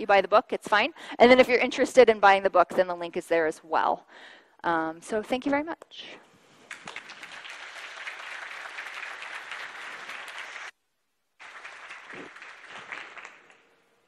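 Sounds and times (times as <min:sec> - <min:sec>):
audience applauding: 0:06.6 - 0:10.8, 0:11.4 - 0:13.8.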